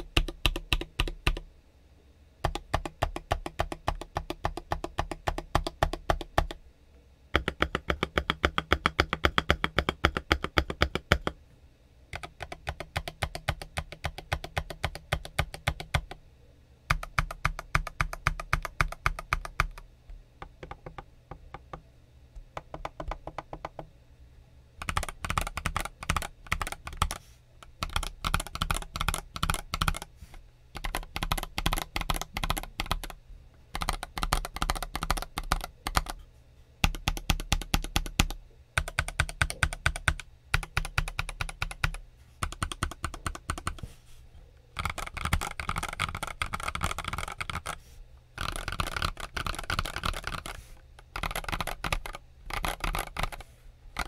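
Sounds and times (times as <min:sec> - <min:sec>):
mechanical keyboard key clacks: 0:51.2 - 0:53.4.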